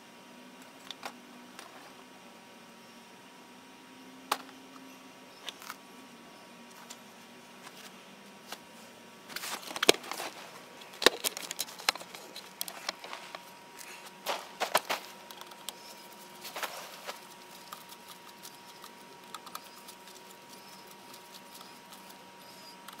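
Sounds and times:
handling clicks taps and rustles: 9.4s - 13.5s.

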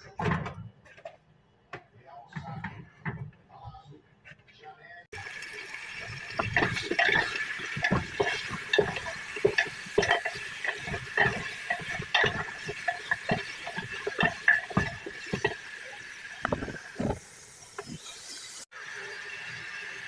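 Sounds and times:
meat knocking and squelching in pot: 5.2s - 17.2s.

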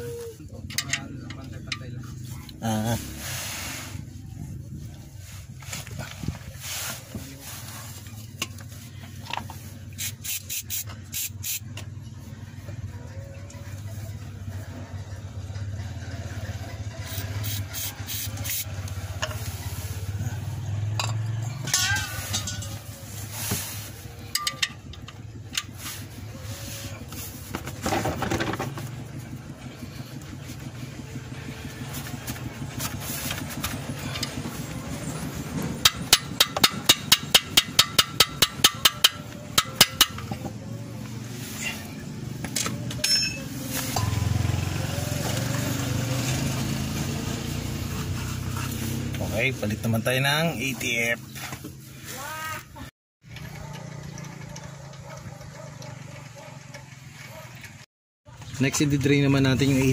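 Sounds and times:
brush scrubbing: 2.3s - 4.1s, 5.0s - 11.2s, 21.8s - 24.4s, 25.7s - 27.7s, 31.4s - 34.7s
metal clinks and scrapes: 16.9s - 29.0s, 41.5s - 45.3s.

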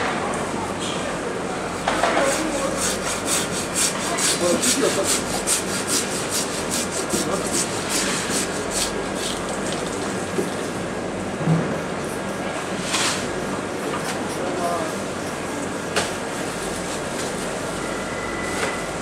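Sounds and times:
knife sawing through fish: 2.2s - 9.4s.

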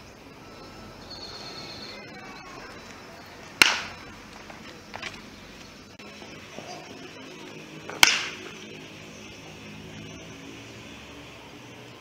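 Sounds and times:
baseball bat crack: 3.4s - 5.2s, 7.8s - 8.7s.

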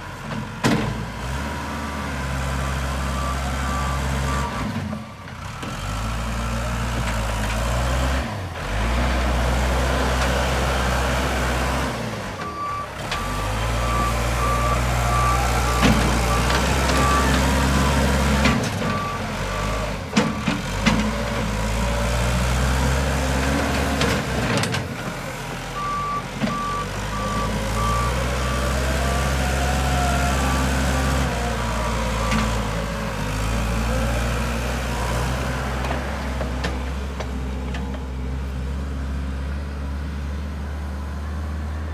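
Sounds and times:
diesel engine running: 0.0s - 41.9s
reverse alarm beeping: 12.5s - 18.0s, 25.8s - 29.3s.

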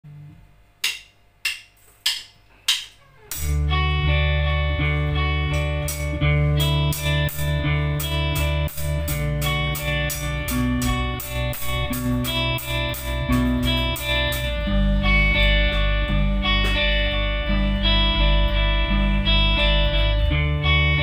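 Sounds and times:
drum stick count-in clicks: 0.8s - 3.6s, 5.5s - 14.5s
rock band playing: 3.3s - 21.0s.

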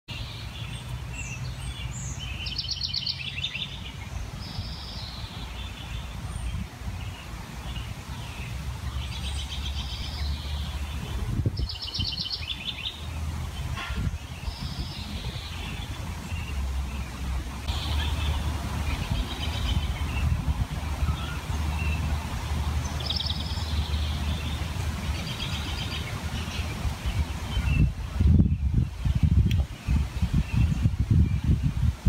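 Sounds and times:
songbirds chirping: 0.1s - 32.0s
low outdoor rumble: 12.9s - 28.5s.

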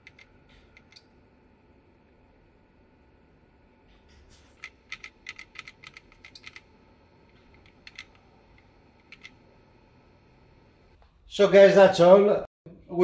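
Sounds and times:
faint typing on a keyboard: 0.0s - 1.1s, 4.6s - 6.7s, 7.3s - 9.4s.

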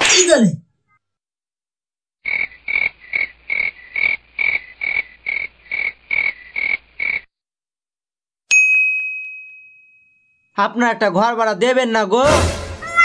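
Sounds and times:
comic rasping calls: 2.2s - 7.3s.

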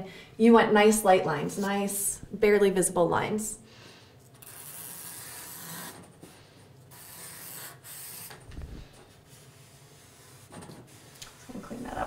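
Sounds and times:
pencil scratching on paper: 6.9s - 8.4s, 9.2s - 12.0s.

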